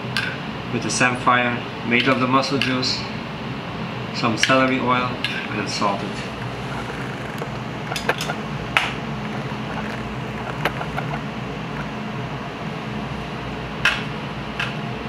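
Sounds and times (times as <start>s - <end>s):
kitchen equipment hum: 5.0s - 15.0s.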